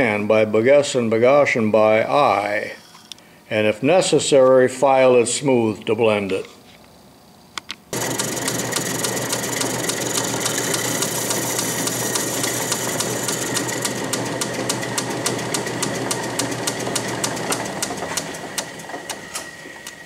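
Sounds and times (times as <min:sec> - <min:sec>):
lathe humming with high whine: 0:07.9 - 0:20.0.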